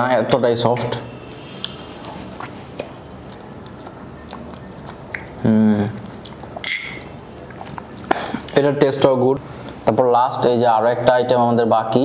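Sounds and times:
person chewing soft sweet: 0:01.4 - 0:08.6
faint mouth clicks: 0:01.6 - 0:05.4.

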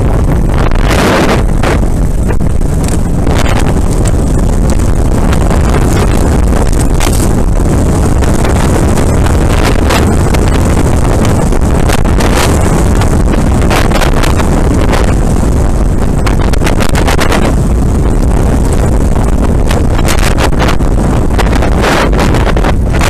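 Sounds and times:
wind buffeting microphone: 0:00.0 - 0:23.0
bike clattering and rattling: 0:01.4 - 0:16.4
tyres crunching on stones: 0:06.6 - 0:07.4.

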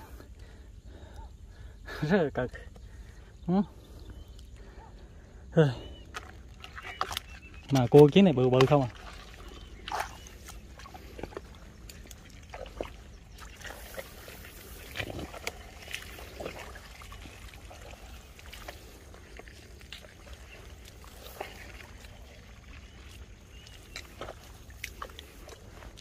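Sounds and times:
water splashing and trickling: 0:04.5 - 0:26.0
hands squelching in wet mud: 0:05.8 - 0:26.0.

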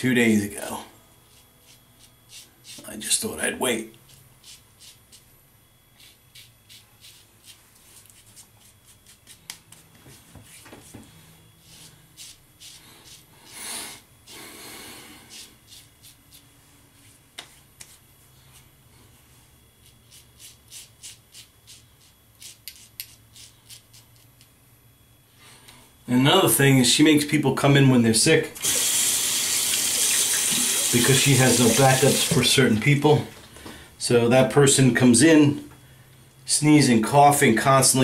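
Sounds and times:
razor scraping stubble: 0:01.2 - 0:03.2, 0:04.0 - 0:05.3, 0:05.9 - 0:10.8, 0:11.6 - 0:13.3, 0:15.2 - 0:16.5, 0:19.8 - 0:24.4, 0:28.6 - 0:32.5.

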